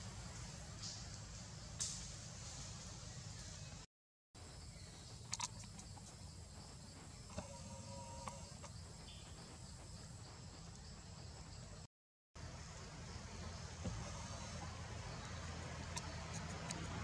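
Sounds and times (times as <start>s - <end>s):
high insect drone: 4.4s - 17.0s.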